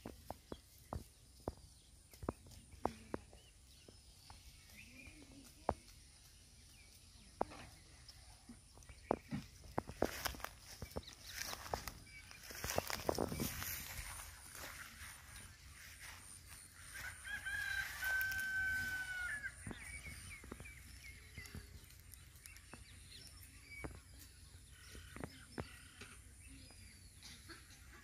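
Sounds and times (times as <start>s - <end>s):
goat cropping grass: 0.0s - 24.3s
rooster crowing: 16.9s - 19.6s.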